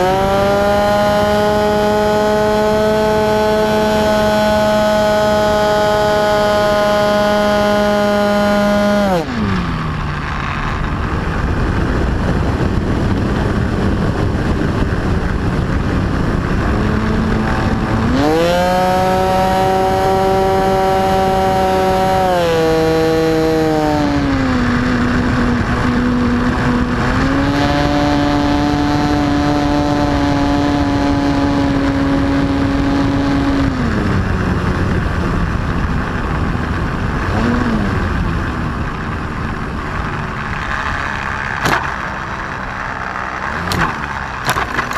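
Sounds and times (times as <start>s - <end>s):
wind rushing on microphone: 0.0s - 44.9s
model plane motor and propeller: 39.6s - 44.9s.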